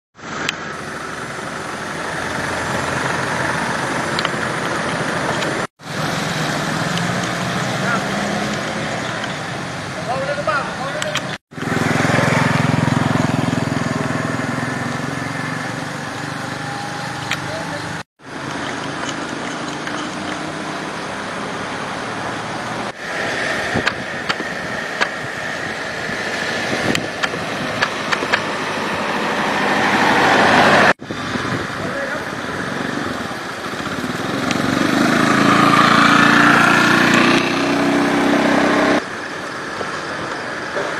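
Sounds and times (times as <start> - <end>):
road traffic: 0.1 - 40.9
sharp clicks: 11.0 - 11.7, 26.9 - 28.5.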